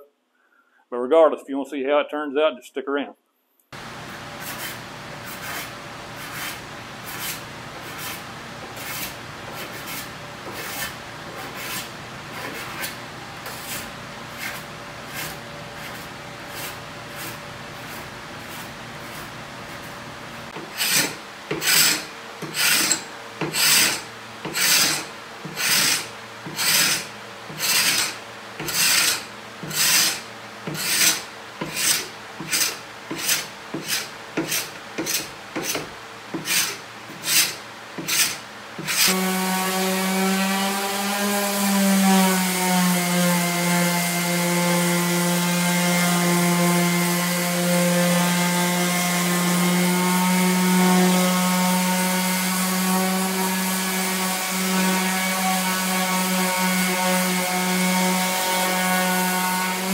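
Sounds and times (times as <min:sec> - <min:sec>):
paint scraper rasping on wood: 0:04.4 - 0:41.4.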